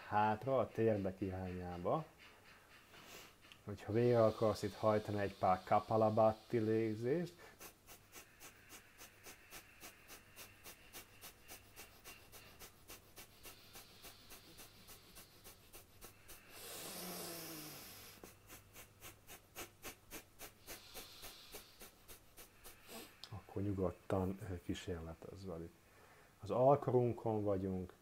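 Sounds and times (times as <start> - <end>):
long loud breath: 2.9 - 23.4, 25.8 - 26.4
forceful nasal exhalations: 2.9 - 23.5.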